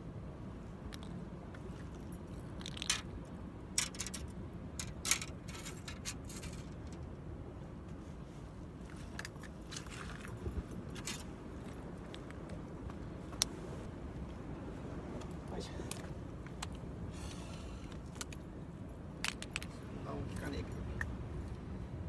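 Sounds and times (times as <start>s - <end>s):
low steady rumble: 0.0s - 22.0s.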